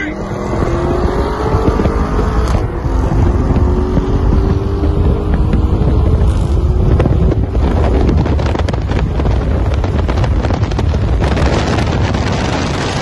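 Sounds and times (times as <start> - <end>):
car engine at full throttle: 0.0 - 13.0
wind rushing on microphone: 0.0 - 13.0
exhaust cracks and pops: 4.4 - 13.0.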